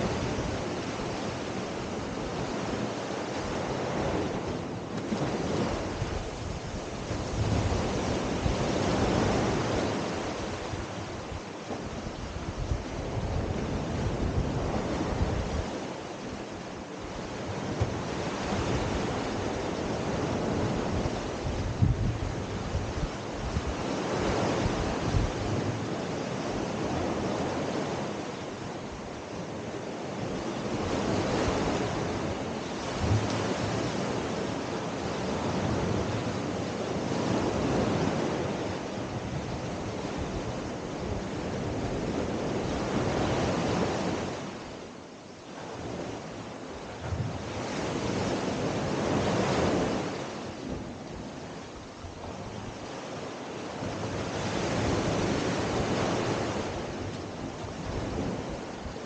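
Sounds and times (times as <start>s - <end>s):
sea waves washing up a beach: 0.0s - 59.0s
wind rumbling on microphone: 0.0s - 59.0s.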